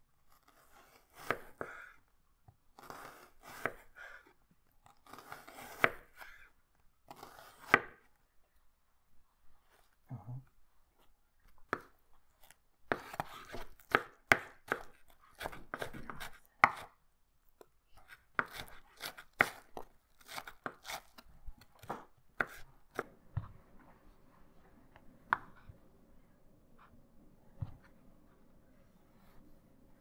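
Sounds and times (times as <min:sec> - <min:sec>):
knife chopping on a cutting board: 0:00.5 - 0:01.8, 0:02.8 - 0:03.8, 0:05.1 - 0:06.3, 0:07.1 - 0:08.1, 0:12.9 - 0:17.0, 0:18.0 - 0:23.5.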